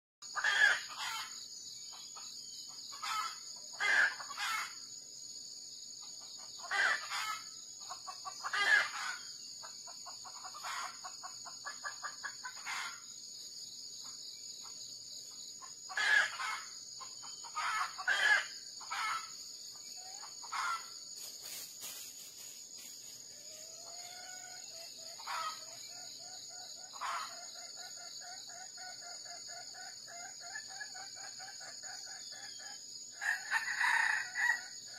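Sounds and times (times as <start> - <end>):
roosters crowing: 6.6 - 7.5, 8.4 - 9.3, 15.9 - 16.7, 17.5 - 19.3, 23.5 - 25.9, 33.2 - 34.9
rooster clucking: 6.6 - 9.2, 10.2 - 13.0.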